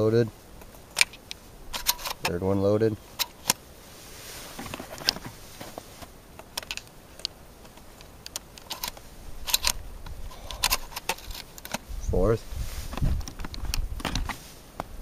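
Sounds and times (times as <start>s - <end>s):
shotgun shells clicking into magazine: 0.9s - 2.3s, 6.4s - 11.8s.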